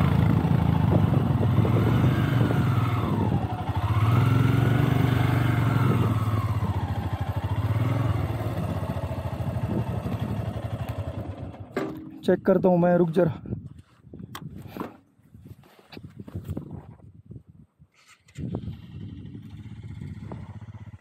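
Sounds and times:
motorcycle engine running: 0:00.0 - 0:12.2, 0:18.4 - 0:21.0.

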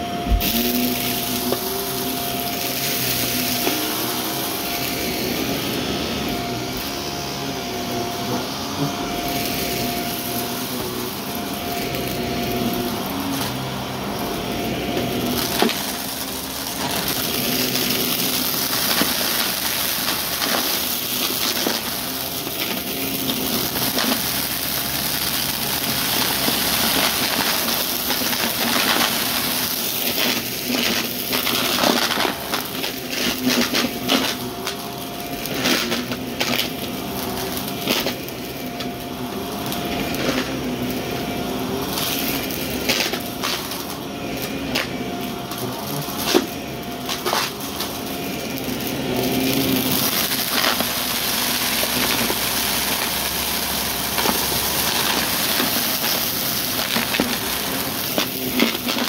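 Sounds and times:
debris crackling in vacuum: 0:00.0 - 0:59.0
vacuum cleaner motor hum: 0:00.0 - 0:59.0.

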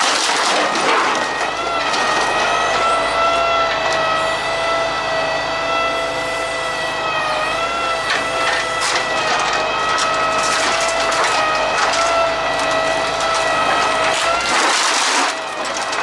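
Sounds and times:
wood snapping and splintering: 0:00.0 - 0:02.9, 0:08.1 - 0:16.0
crane hydraulics whining: 0:00.0 - 0:16.0.

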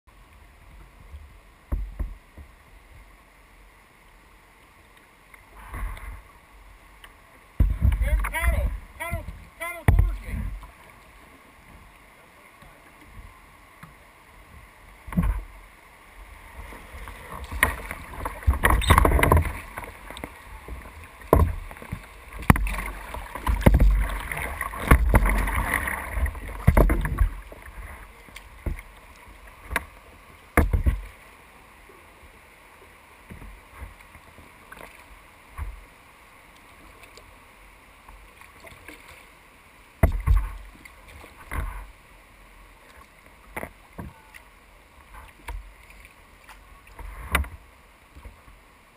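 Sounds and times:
water washing against hull: 0:05.1 - 0:48.9
paddle strokes splashing: 0:07.1 - 0:32.1, 0:32.7 - 0:48.9
knocks and low thumps: 0:07.6 - 0:10.6, 0:23.5 - 0:24.1.

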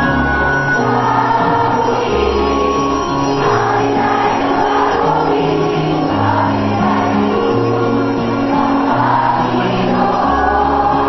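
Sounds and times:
hymn singing with instruments: 0:00.0 - 0:11.0.

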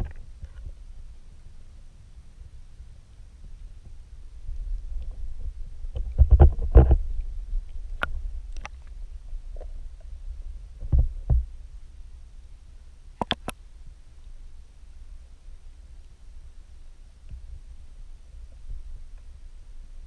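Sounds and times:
low underwater rumble: 0:00.0 - 0:12.9.

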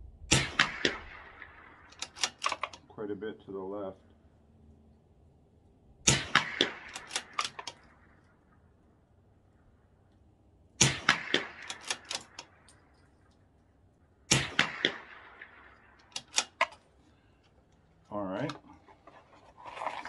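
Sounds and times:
rifle shots: 0:00.3 - 0:02.8, 0:06.0 - 0:08.2, 0:10.8 - 0:12.9, 0:14.3 - 0:16.8
sharp rifle bolt clicks: 0:01.9 - 0:02.8, 0:06.1 - 0:07.9, 0:10.8 - 0:13.2, 0:15.9 - 0:16.9.

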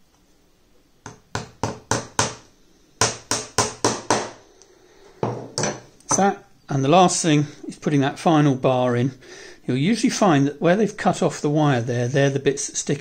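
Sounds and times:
hammer tapping pins into wood: 0:01.0 - 0:02.4, 0:03.0 - 0:04.4.

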